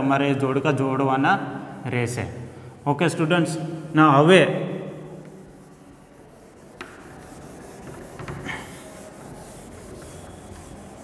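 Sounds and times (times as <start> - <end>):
cloth rubbing on whiteboard: 2.8 - 11.0.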